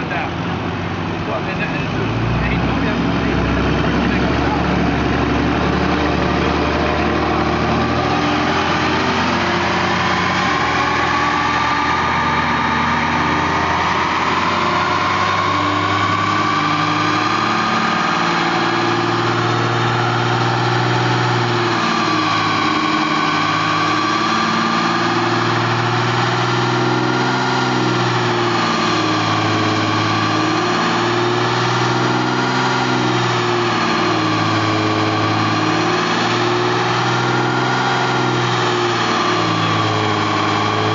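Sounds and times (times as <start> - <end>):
diesel engine idling: 0.0 - 40.9.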